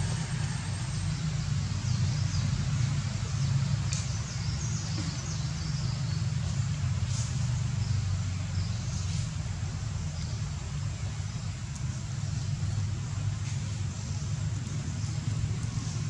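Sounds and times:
steady low rumble: 7.6s - 16.0s.

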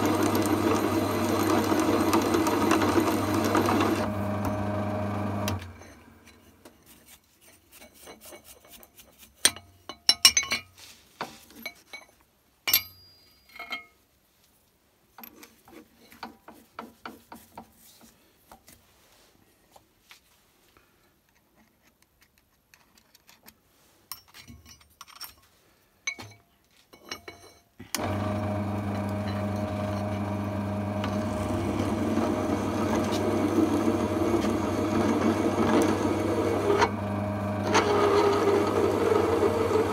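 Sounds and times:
drill press motor running: 0.0s - 5.7s, 28.0s - 39.9s
drill press spindle running down: 0.0s - 5.7s, 28.0s - 39.9s
brush scraping metal chips: 6.3s - 9.5s
countersink cutting steel: 28.0s - 39.9s.

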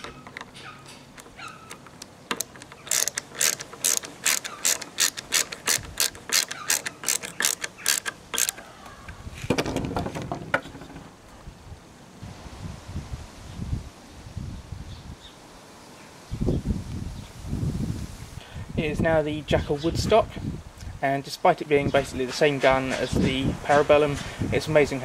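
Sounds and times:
sharp clicks of screw turning: 0.0s - 9.2s
handling noise: 0.0s - 11.4s.

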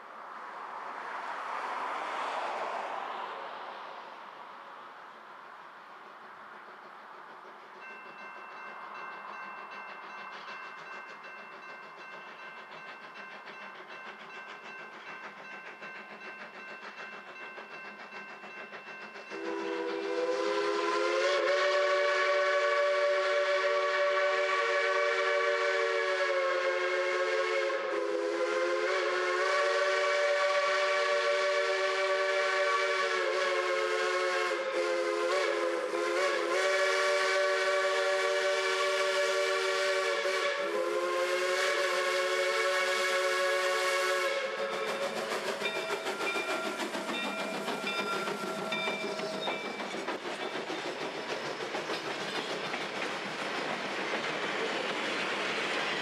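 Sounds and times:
steam locomotive whistle: 19.0s - 50.7s.

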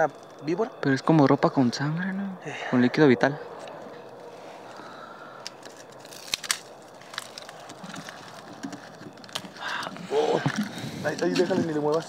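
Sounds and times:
dry leaves and gravel crunching: 3.6s - 12.0s.

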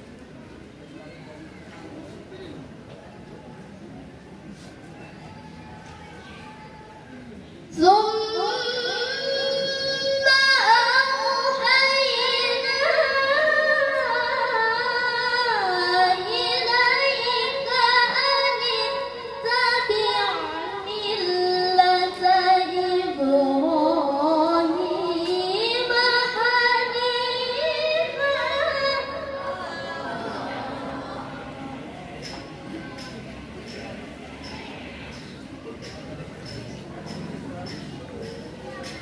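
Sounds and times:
woman chanting through loudspeaker: 7.7s - 31.7s.

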